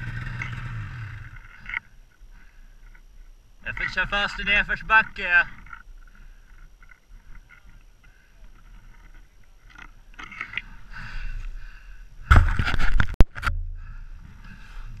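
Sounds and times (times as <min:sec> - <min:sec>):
snowmobile engine running low: 0:00.0 - 0:01.8.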